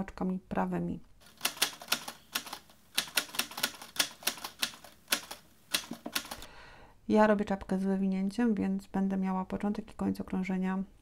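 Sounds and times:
knitting needles clicking: 0:01.3 - 0:06.5.

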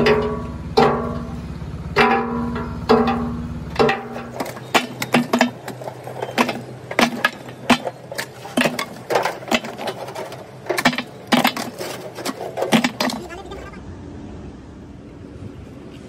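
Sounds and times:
low hum: 0:00.0 - 0:11.7
coal clattering into box: 0:02.0 - 0:13.5.

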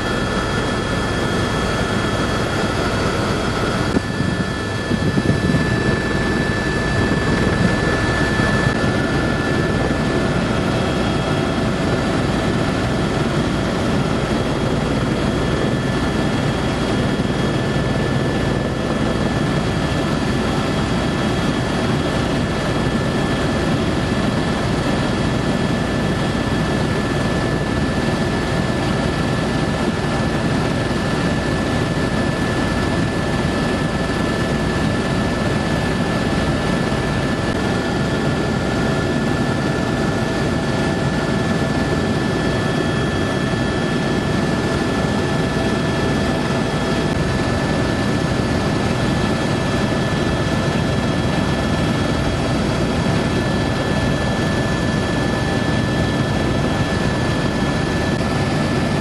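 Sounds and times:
high whine: 0:00.0 - 0:22.4
helicopter engine and rotor drone: 0:00.0 - 0:59.0.

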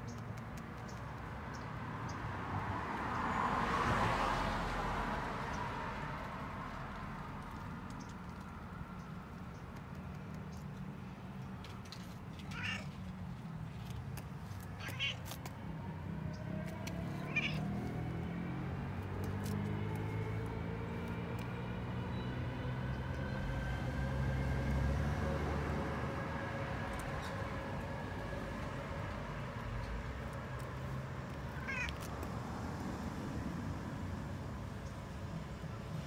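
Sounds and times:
cat meowing: 0:12.5 - 0:12.9, 0:14.8 - 0:15.2, 0:17.2 - 0:17.7, 0:31.6 - 0:32.0.

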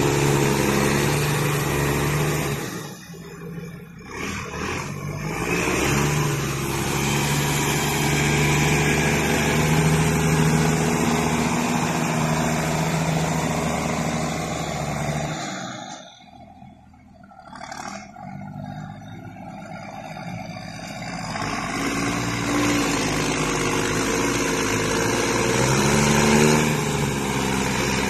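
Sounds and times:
tractor diesel engine: 0:00.0 - 0:28.0.

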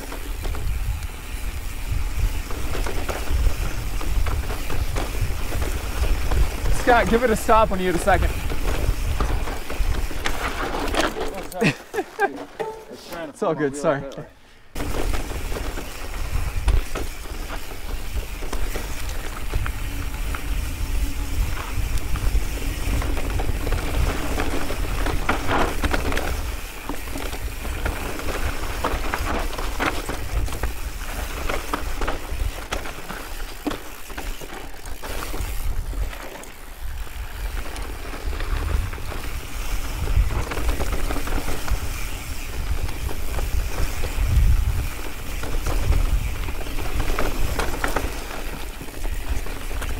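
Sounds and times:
wind buffeting microphone: 0:00.0 - 0:10.6, 0:14.7 - 0:32.8, 0:36.8 - 0:48.0
bike rattling over rocks: 0:00.0 - 0:12.8, 0:14.7 - 0:49.9.

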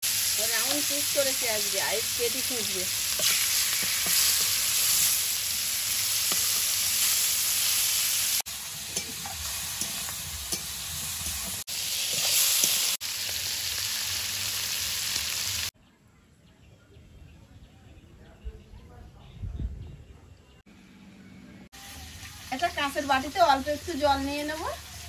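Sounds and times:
vegetables sizzling in hot oil: 0:00.0 - 0:15.7, 0:21.8 - 0:25.0.

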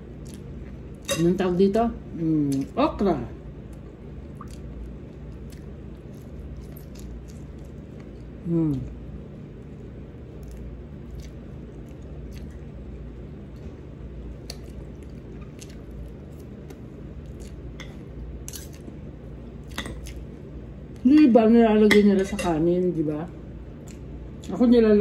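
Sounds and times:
person chewing: 0:04.3 - 0:19.0, 0:19.6 - 0:21.0.

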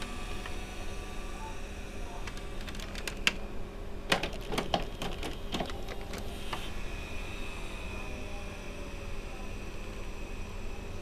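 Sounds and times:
steady low hum: 0:00.0 - 0:11.0
tape mechanism clicking: 0:04.1 - 0:06.6.

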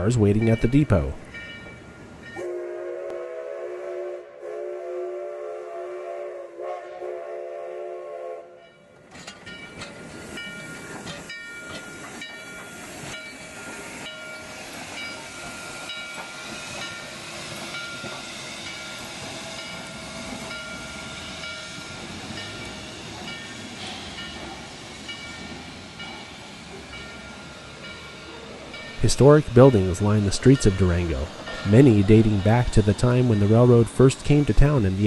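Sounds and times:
steam whistle chord: 0:02.4 - 0:08.6
steam hissing: 0:10.0 - 0:35.0.

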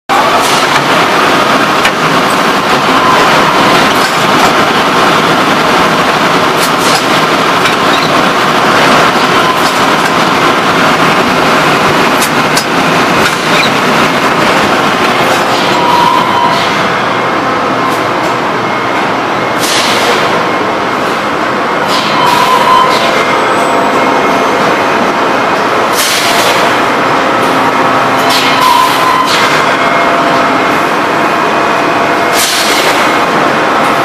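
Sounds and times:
blow molding machine clatter and hiss: 0:00.1 - 0:15.9, 0:19.6 - 0:21.2, 0:21.8 - 0:23.2, 0:25.9 - 0:29.7, 0:32.3 - 0:34.0.

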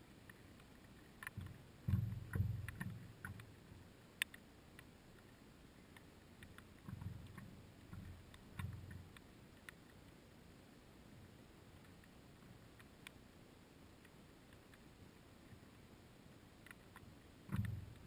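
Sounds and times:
sharp clicks: 0:00.3 - 0:03.6
water slapping against paddleboard: 0:01.3 - 0:03.6.

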